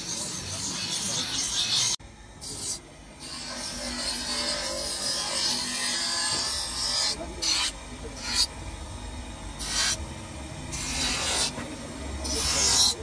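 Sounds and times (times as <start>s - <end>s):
grinder motor hum: 0.0s - 13.0s
wood rasping on grinder wheel: 10.7s - 13.0s.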